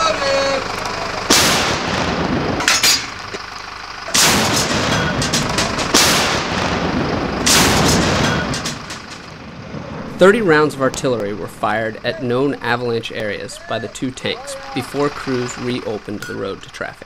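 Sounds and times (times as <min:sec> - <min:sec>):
tank gun blasts with echo: 0:01.2 - 0:03.0, 0:04.1 - 0:09.7.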